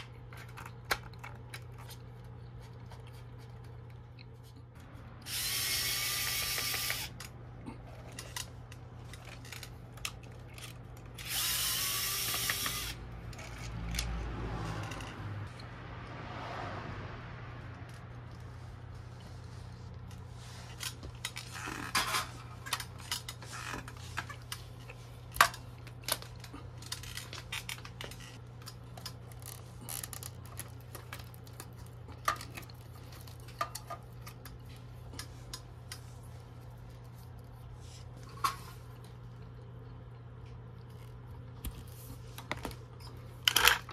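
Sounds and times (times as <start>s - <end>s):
small parts clicking and clinking: 5.3s - 15.7s, 42.5s - 43.9s.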